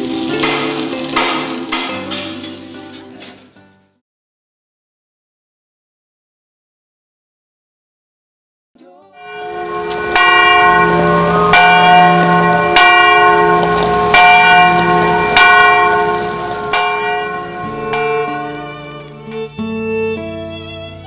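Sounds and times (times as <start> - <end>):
church bell tolling: 9.2 - 20.8.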